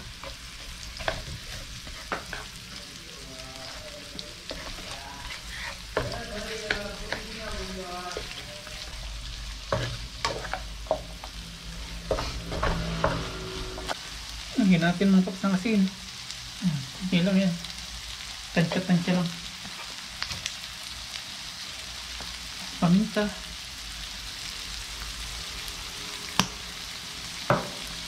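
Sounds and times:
spatula scraping pan: 0:00.0 - 0:02.9, 0:03.6 - 0:14.0
onions sizzling in hot oil: 0:00.0 - 0:28.0.

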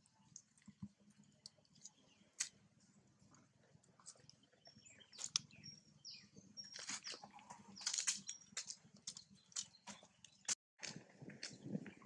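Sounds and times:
monkeys scampering on dry leaves: 0:06.8 - 0:09.7.

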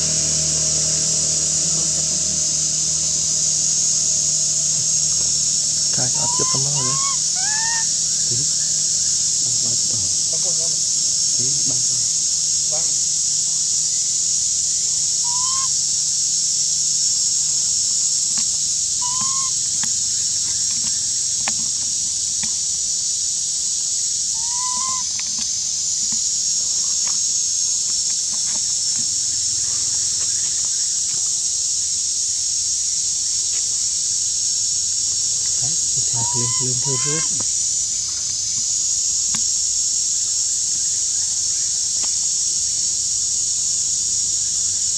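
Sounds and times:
insect chorus droning: 0:00.0 - 0:44.9
rising whistled calls: 0:04.3 - 0:10.6, 0:15.2 - 0:15.8, 0:19.0 - 0:19.8, 0:24.3 - 0:26.0, 0:35.5 - 0:37.4.

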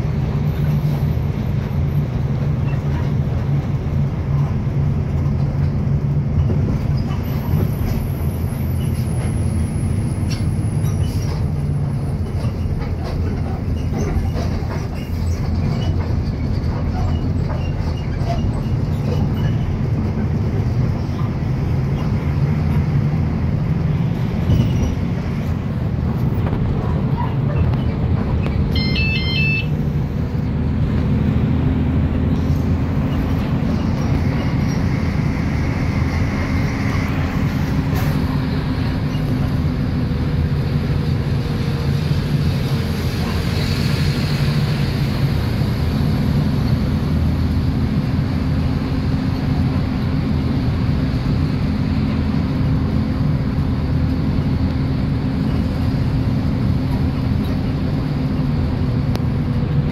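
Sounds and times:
bus engine and road noise: 0:00.0 - 0:59.9
high beeps: 0:28.7 - 0:29.7.

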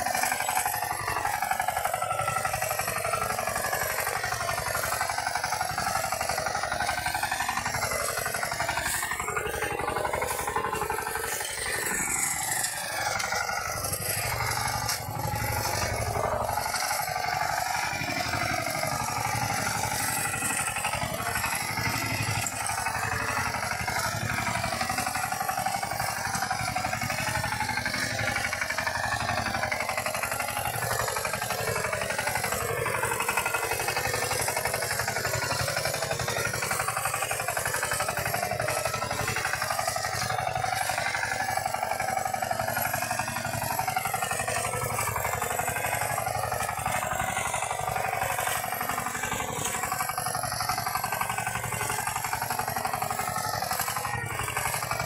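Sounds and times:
walking tractor engine running: 0:00.0 - 0:55.0.

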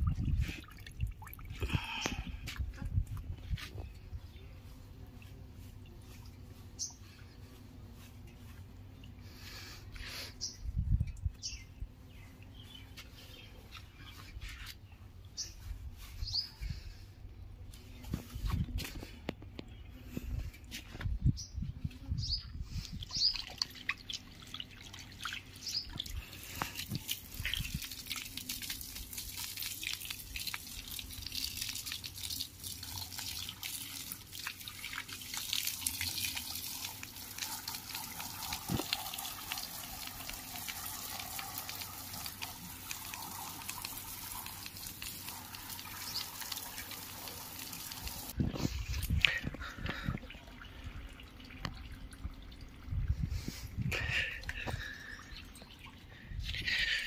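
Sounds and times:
water splashing on paving: 0:23.1 - 0:48.4.

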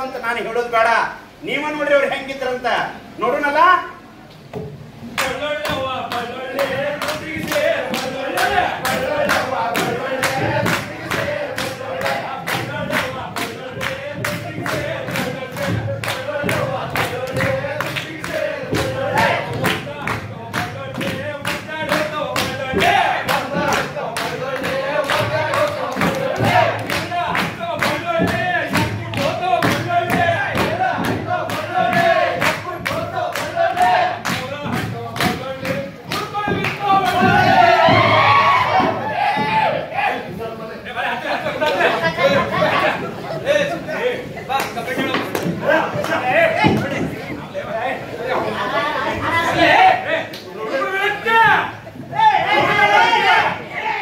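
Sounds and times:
upbeat music with fast beat: 0:05.2 - 0:39.5
group of voices singing: 0:05.2 - 0:40.4, 0:48.0 - 0:54.0
people shouting and whooping: 0:36.4 - 0:40.3.

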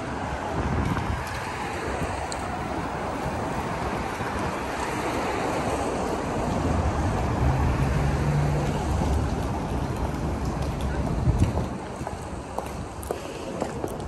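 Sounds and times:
city street traffic: 0:00.0 - 0:14.0
vehicle passing close by: 0:00.6 - 0:11.3.

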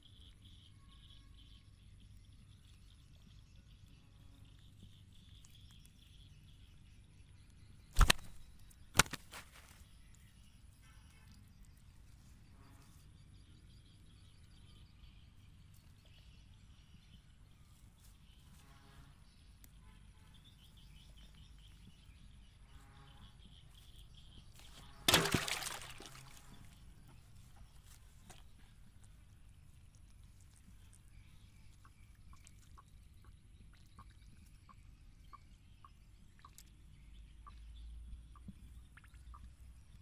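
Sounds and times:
faint bird chirps: 0:00.0 - 0:25.0, 0:25.6 - 0:40.0
fish slapping on ground: 0:08.0 - 0:08.4, 0:09.0 - 0:09.8, 0:24.6 - 0:26.6.

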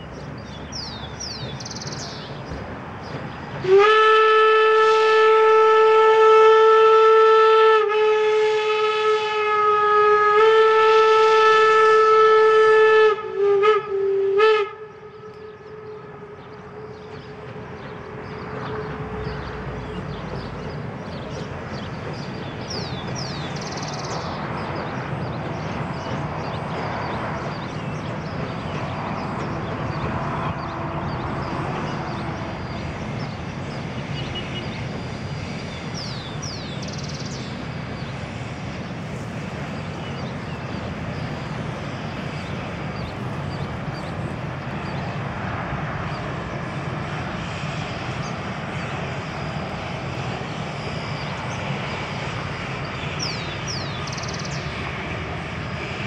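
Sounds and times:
distant train rumbling: 0:00.0 - 0:56.0
bird chirping: 0:00.1 - 0:03.4, 0:15.1 - 0:30.1, 0:35.8 - 0:38.2, 0:53.0 - 0:54.8.

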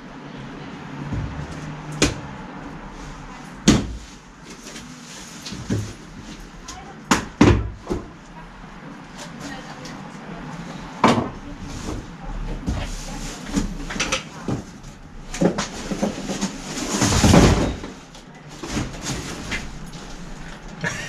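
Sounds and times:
cardboard box scraping and rustling: 0:15.4 - 0:18.0.

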